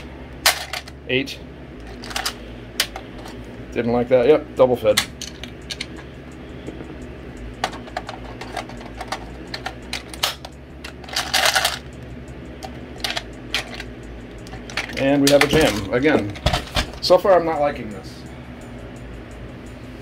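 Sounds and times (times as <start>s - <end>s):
loose cartridges rattling: 0.4s - 1.0s, 1.8s - 3.4s, 5.0s - 6.0s, 7.6s - 11.9s, 12.6s - 16.9s.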